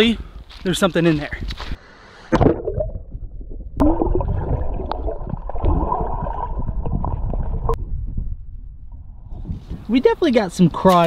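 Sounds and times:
muffled underwater river rushing: 2.3 - 9.6.

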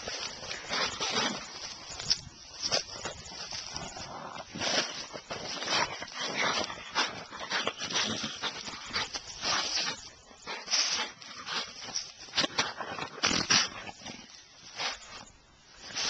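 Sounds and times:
dog sniffing breathy bursts: 3.4 - 16.0.

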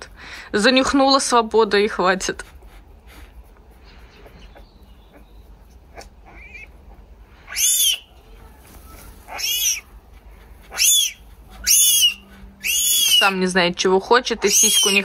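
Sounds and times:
lynx kitten crying: 6.2 - 6.7, 7.5 - 8.1, 9.3 - 9.9, 10.7 - 13.4, 14.4 - 15.0.

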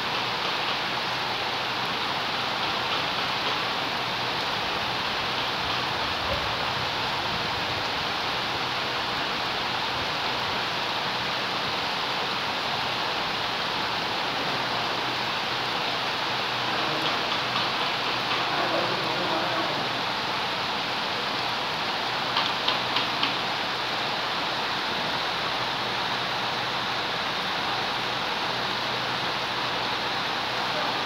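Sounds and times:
steady rain on wet ground: 0.0 - 31.0.

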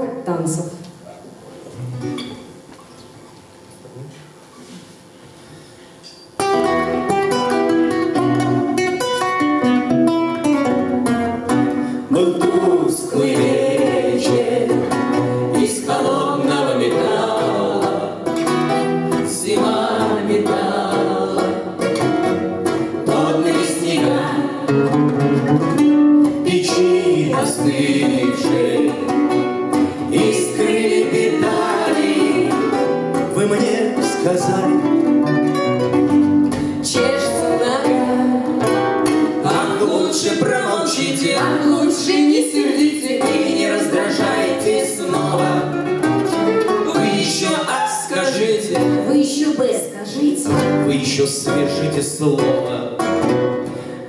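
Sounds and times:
acoustic guitars playing: 1.1 - 3.4, 4.4 - 54.0
voices singing: 12.1 - 25.0, 26.4 - 34.9, 36.8 - 49.2.

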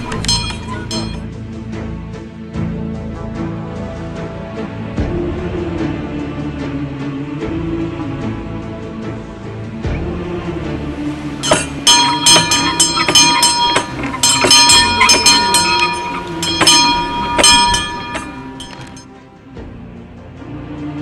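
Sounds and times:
small bell ringing: 0.0 - 1.2, 11.4 - 19.1.

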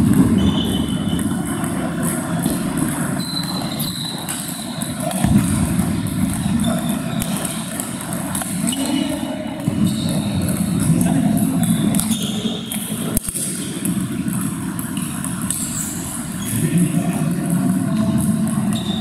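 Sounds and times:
table tennis balls clicking: 0.0 - 16.3.

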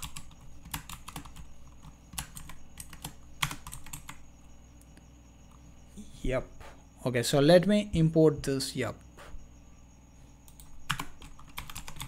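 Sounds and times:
typing on computer keyboard: 0.0 - 4.2, 10.5 - 12.0.

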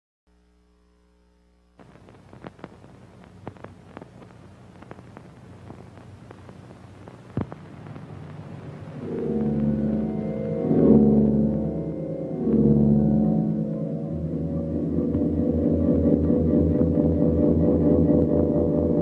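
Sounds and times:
faint low hum: 0.3 - 19.0
hiss with crackles: 1.8 - 11.4.

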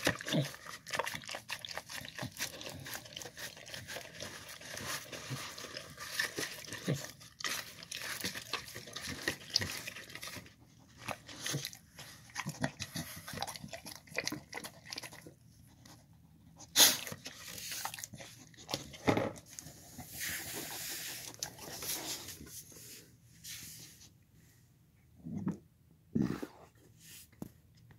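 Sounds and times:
dog lapping from plastic bowl: 0.0 - 16.0.

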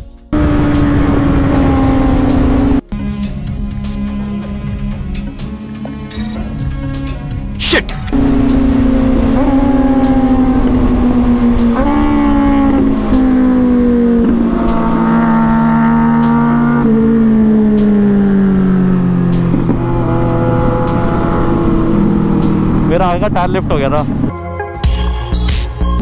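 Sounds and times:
motorcycle engine changing gears: 0.3 - 2.9, 8.0 - 24.3.

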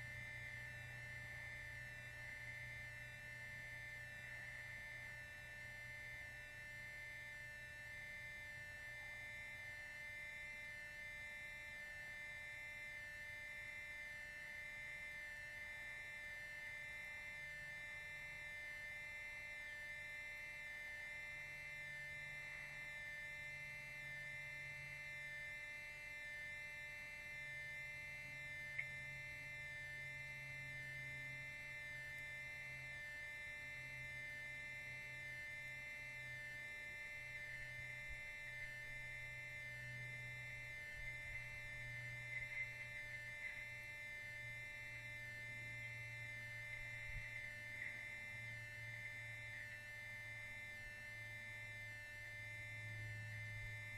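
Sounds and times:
electrical hum and whine: 0.0 - 53.9
faint ticks: 28.7 - 29.1.

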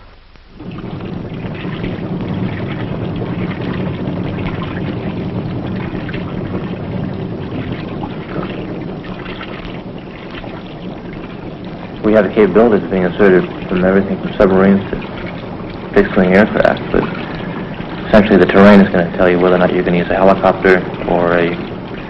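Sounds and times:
boat diesel engines droning: 0.6 - 22.0.

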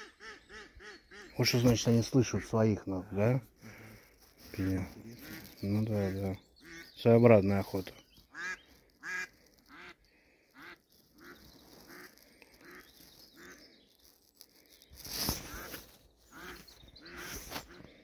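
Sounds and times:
duck quacking: 8.3 - 10.0.

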